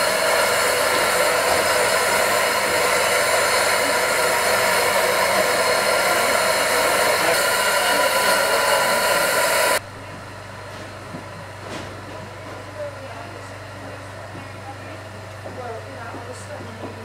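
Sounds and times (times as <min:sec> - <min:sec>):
locomotive steam hissing: 0:00.0 - 0:09.8.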